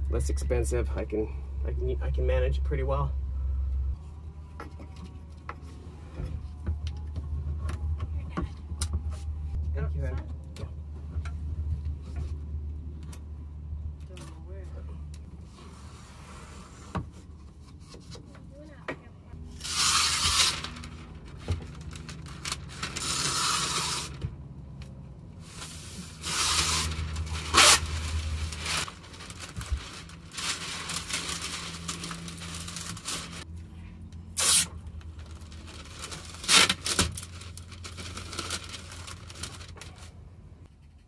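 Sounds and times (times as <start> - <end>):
masking tape ripping off roll: 19.6 - 24.2, 25.7 - 33.4, 34.4 - 39.8.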